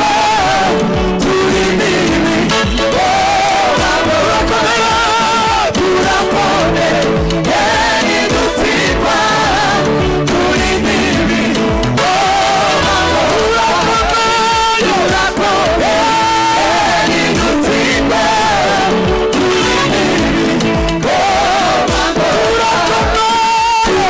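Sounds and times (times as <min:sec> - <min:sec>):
band with steady beat: 0:00.0 - 0:24.0
group of singers: 0:00.0 - 0:24.0
man singing lead: 0:00.0 - 0:24.0.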